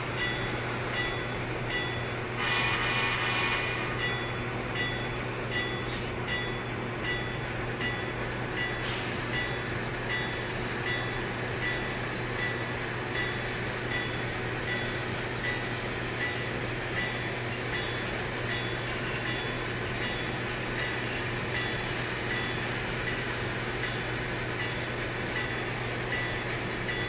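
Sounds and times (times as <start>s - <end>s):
locomotive bell ringing: 0.1s - 2.6s, 3.5s - 27.0s.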